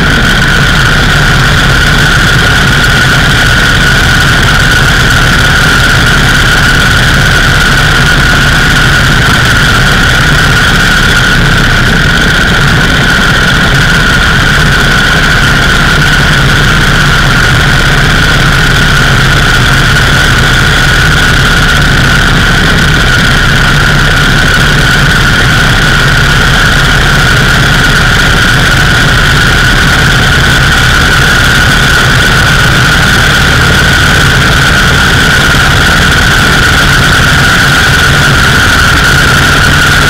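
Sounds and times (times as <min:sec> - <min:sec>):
motorcycle engine running: 0:00.0 - 0:40.0
wind rush on microphone: 0:00.0 - 0:40.0.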